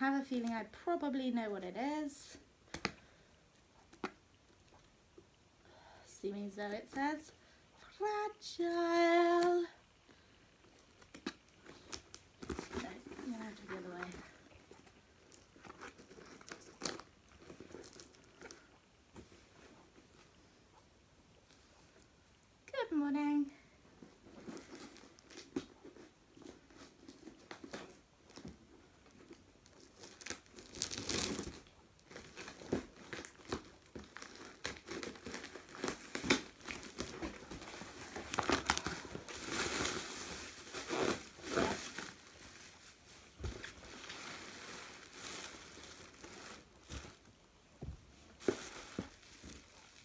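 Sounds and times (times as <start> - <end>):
packing material crinkling: 10.7 - 18.8, 24.1 - 47.4, 48.3 - 50.0
packing tape tearing: 29.7 - 42.6.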